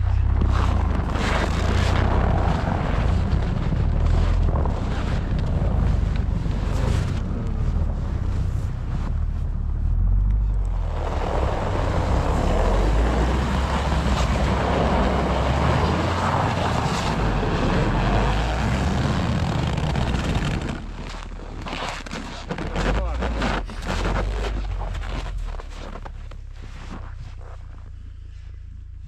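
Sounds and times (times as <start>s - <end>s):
vehicle engine rumble: 0.0s - 29.0s.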